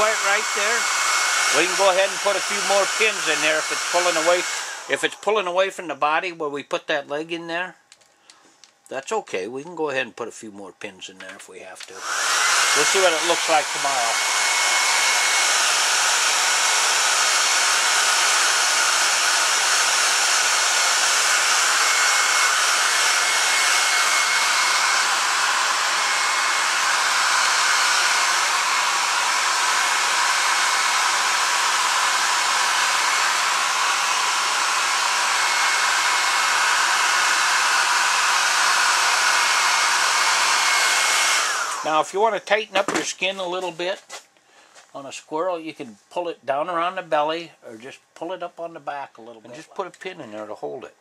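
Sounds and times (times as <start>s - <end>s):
hair dryer blowing: 0.0s - 5.7s, 11.8s - 43.6s.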